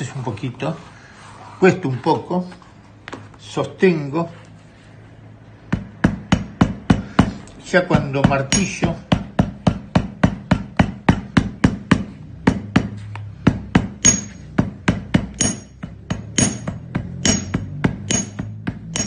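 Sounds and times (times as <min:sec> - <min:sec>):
hammer tapping leather: 0:08.2 - 0:19.0
metallic ring of hammer blows: 0:08.5 - 0:08.9, 0:14.0 - 0:14.6, 0:15.4 - 0:19.0.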